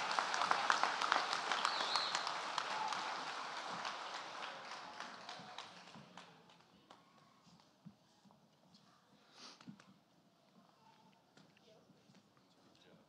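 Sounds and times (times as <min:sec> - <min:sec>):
audience applause: 0:00.0 - 0:06.5.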